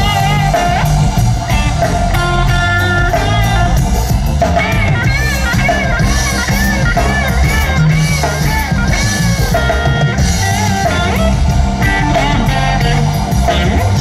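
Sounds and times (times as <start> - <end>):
drum kit: 0.0 - 14.0
electric bass: 0.0 - 14.0
electric guitar lead: 0.0 - 14.0.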